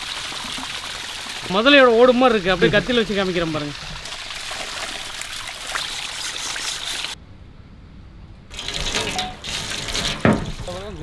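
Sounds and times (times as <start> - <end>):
water splashing onto metal tray: 8.5 - 11.0.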